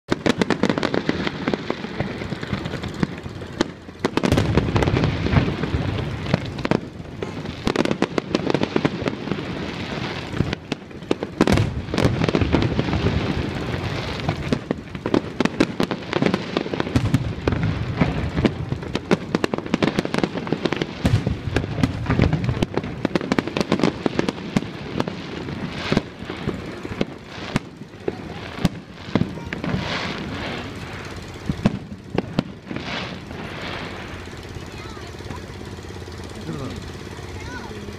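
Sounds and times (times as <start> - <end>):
fireworks bangs and crackles: 0.0 - 37.9.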